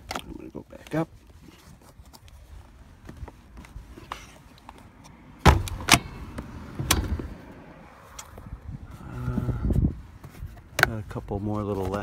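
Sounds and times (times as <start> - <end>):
plastic handling rustle and ticks: 0.0 - 6.0, 10.2 - 12.0.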